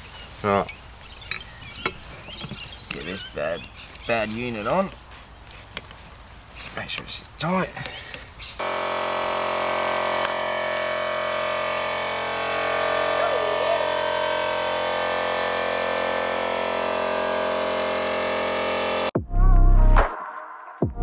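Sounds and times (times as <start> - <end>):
air compressor humming: 8.6 - 19.2
high hiss of air: 17.2 - 19.1.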